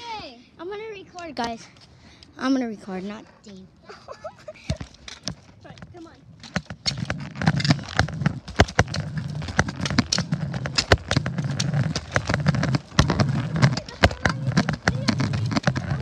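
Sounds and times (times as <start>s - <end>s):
camera handling rumble and knocks: 4.6s - 16.0s
footsteps on pavement: 4.6s - 16.0s.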